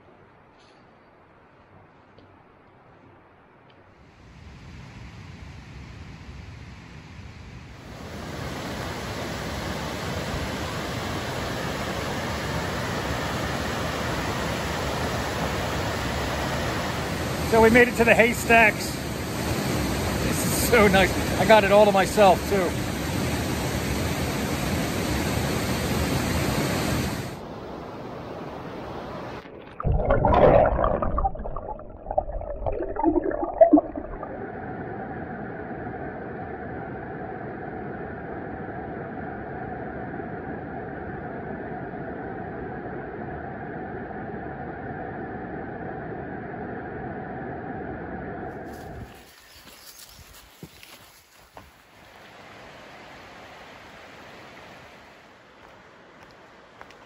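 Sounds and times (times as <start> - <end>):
underwater gurgling and rumbling: 29.3 - 38.5
water rushing over rocks: 29.4 - 34.4.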